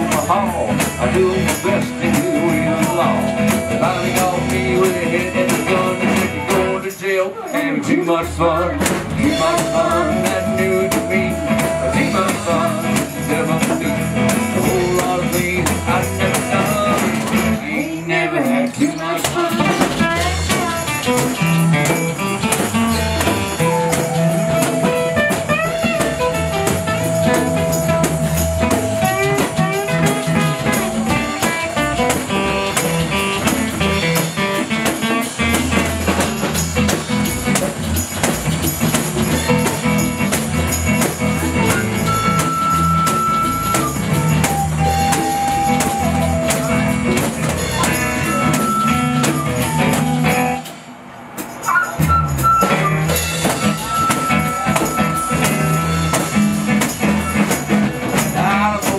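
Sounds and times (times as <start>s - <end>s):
electric bass: 0.0s - 6.9s, 8.1s - 17.7s, 19.6s - 50.6s, 52.0s - 58.9s
strummed acoustic guitar: 0.0s - 7.1s, 7.7s - 50.6s
flute melody: 1.6s - 6.1s, 9.2s - 15.2s, 23.0s - 33.0s, 41.6s - 50.9s, 51.6s - 56.7s
tambourine shaking: 20.2s - 50.8s.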